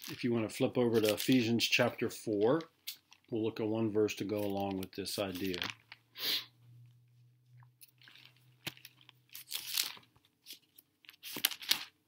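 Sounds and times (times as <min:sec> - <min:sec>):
pages flipped by hand: 0:00.9 - 0:01.5, 0:04.3 - 0:06.0, 0:07.8 - 0:12.0.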